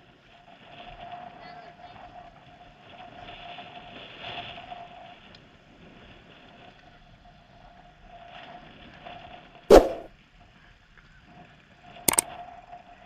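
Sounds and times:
soft rushing noise: 9.7s - 10.1s.

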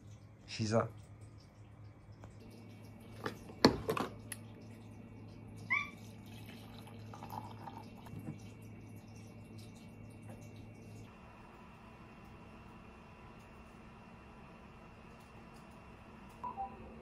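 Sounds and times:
coffee pouring into mug: 2.2s - 5.5s, 6.1s - 10.8s.

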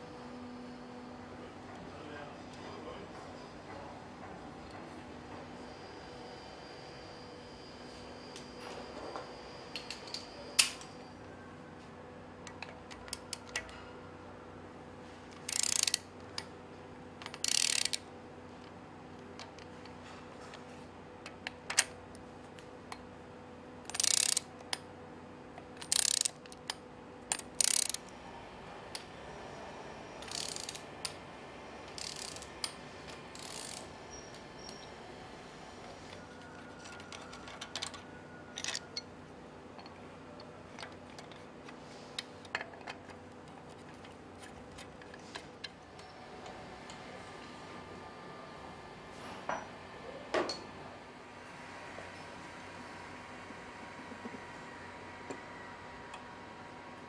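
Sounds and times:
power tool driving bolts: 15.4s - 16.0s, 17.2s - 18.0s, 23.9s - 24.5s, 25.8s - 26.6s, 27.3s - 28.1s, 30.2s - 30.8s, 33.4s - 33.9s.

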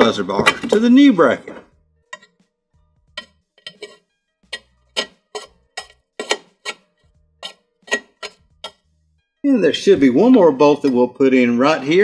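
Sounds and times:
metal tools clicking and clinking: 0.0s - 1.0s, 2.1s - 2.4s, 3.2s - 4.0s, 4.6s - 6.8s, 7.4s - 8.8s.

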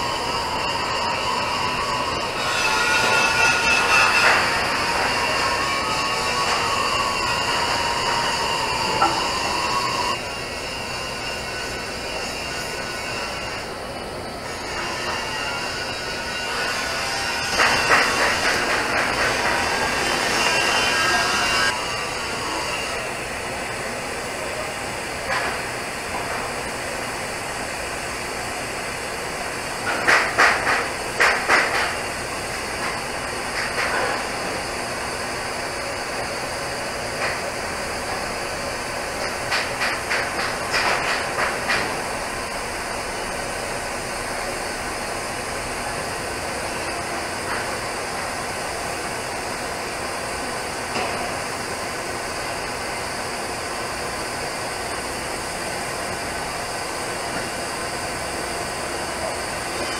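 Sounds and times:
welding arc hiss: 14.6s - 22.3s.

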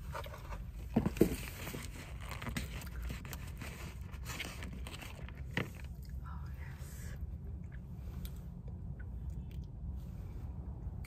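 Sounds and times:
cardboard and paper crinkling: 0.0s - 6.0s
steady low hum: 0.0s - 11.0s.

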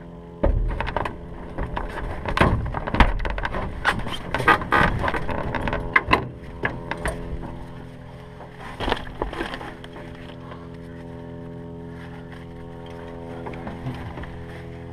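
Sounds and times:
steady engine hum: 0.0s - 14.9s
clunks and clicks in cockpit: 0.4s - 7.7s.

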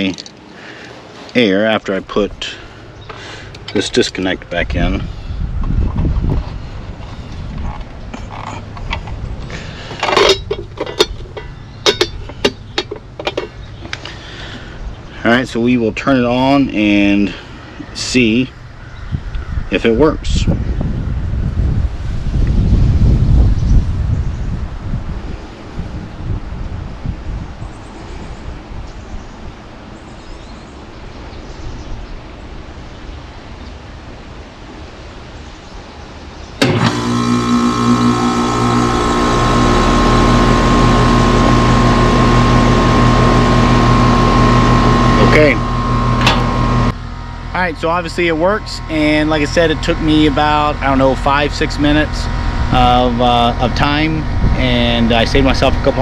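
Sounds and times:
low steady rumble: 1.3s - 22.1s, 36.6s - 56.0s
air conditioner unit running: 2.1s - 18.5s, 36.6s - 56.0s.

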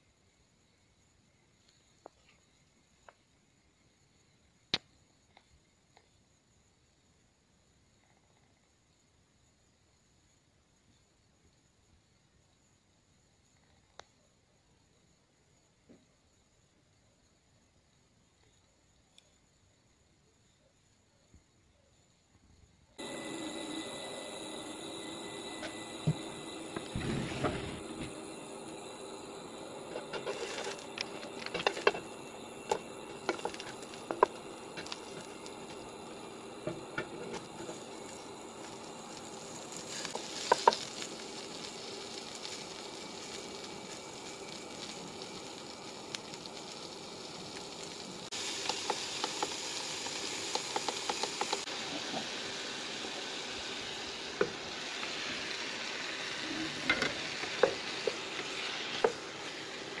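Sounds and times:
hot oil sizzling in a wok: 23.0s - 60.0s
wooden spatula scraping a pan: 29.9s - 32.1s.

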